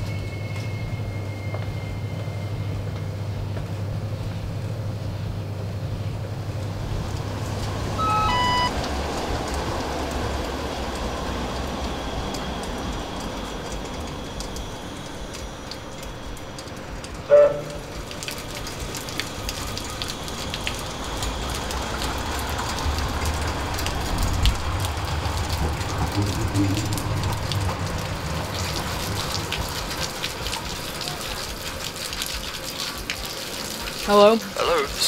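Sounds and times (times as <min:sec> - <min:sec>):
rain drops pattering: 0:00.0 - 0:35.0
steady low rumble: 0:00.8 - 0:30.5
tram horn toot: 0:07.9 - 0:08.9, 0:17.3 - 0:18.0
electronic beeps: 0:08.0 - 0:08.7.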